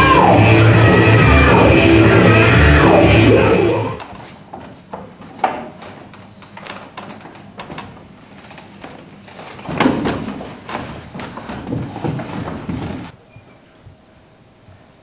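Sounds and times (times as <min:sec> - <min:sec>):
bodies bumping on wooden floor: 0:04.2 - 0:13.1.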